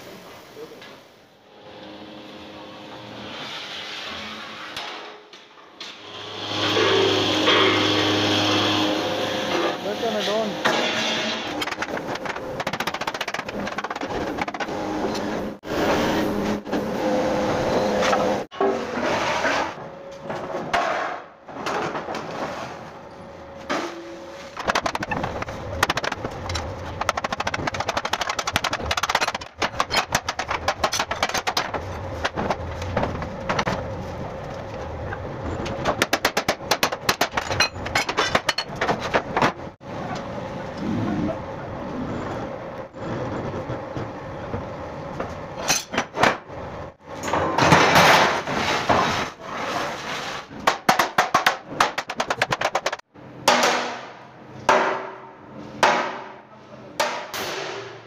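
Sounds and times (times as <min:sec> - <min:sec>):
metal clanks and knocks: 0:35.6 - 0:39.7.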